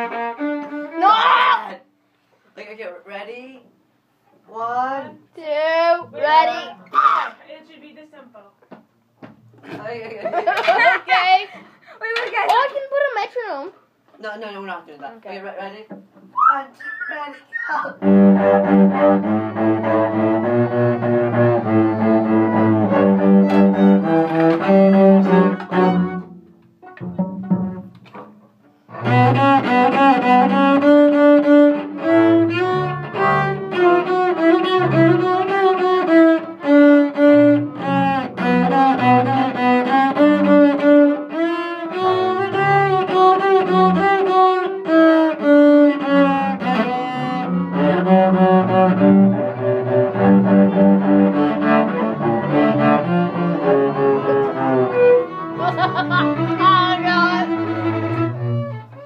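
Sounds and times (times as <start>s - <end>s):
string ensemble playing: 0.0s - 1.2s, 18.0s - 59.0s
cello bowing: 0.0s - 1.8s, 18.0s - 28.3s, 28.9s - 59.0s.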